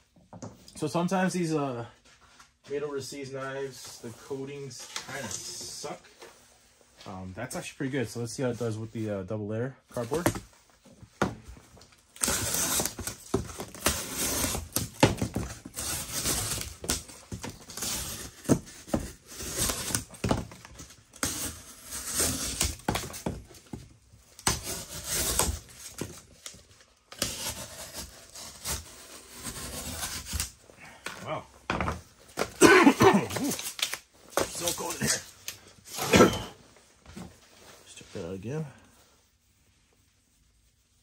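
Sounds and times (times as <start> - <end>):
knife slicing cardboard: 12.2 - 20.4, 21.2 - 23.3, 24.4 - 26.2, 27.2 - 30.6.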